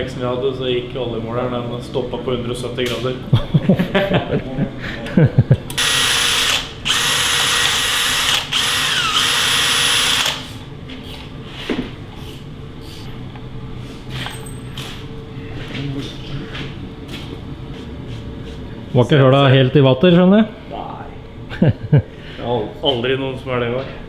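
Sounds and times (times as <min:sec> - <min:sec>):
cordless drill whining: 0:05.8 - 0:10.5.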